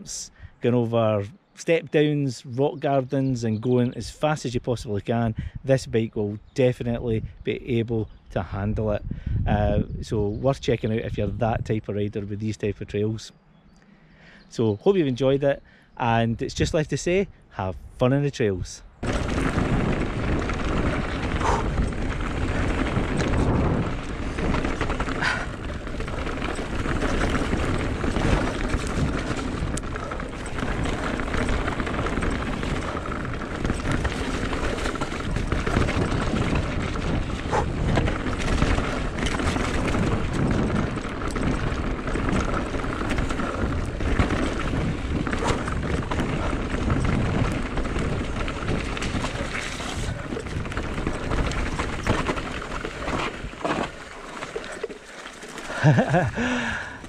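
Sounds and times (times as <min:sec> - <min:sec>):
tyres rumbling on gravel: 0:18.1 - 0:57.0
bike rattling: 0:18.9 - 0:57.0.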